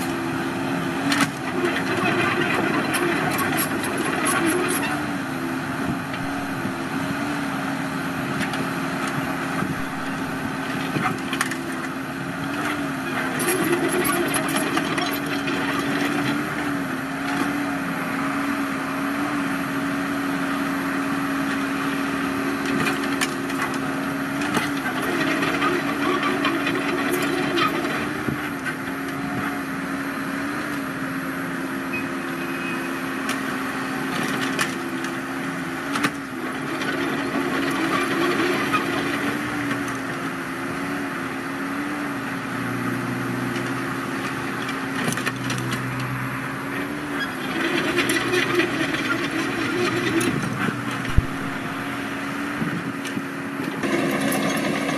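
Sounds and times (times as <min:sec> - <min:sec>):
excavator diesel engine running: 0:00.0 - 0:54.9
tracks crunching and clanking: 0:46.8 - 0:54.9.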